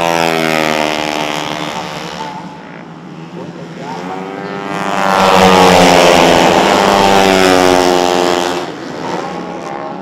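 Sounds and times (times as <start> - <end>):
scooter engine passing at speed: 3.9 - 10.0.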